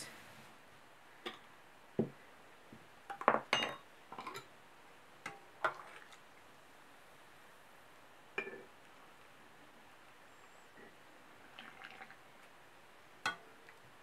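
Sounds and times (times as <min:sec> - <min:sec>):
kitchenware clinking on a table: 0:03.1 - 0:04.5, 0:08.4 - 0:08.7.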